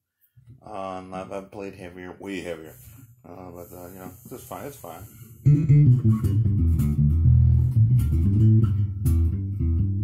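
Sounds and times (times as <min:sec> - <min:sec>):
bass string clicks: 0:05.4 - 0:10.0
electric bass plucked notes: 0:05.4 - 0:10.0.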